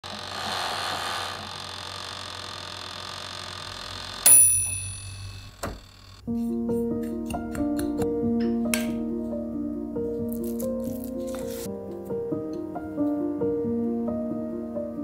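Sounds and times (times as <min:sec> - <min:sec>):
toaster oven humming: 0:01.4 - 0:06.2
timer bell ding: 0:04.2 - 0:05.6.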